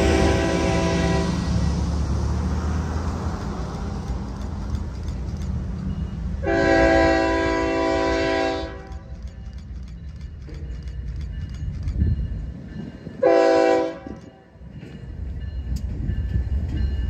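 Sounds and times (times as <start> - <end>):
locomotive horn blast: 0.0 - 1.7, 6.4 - 9.1, 13.2 - 14.2
low rumble of train: 0.0 - 17.0.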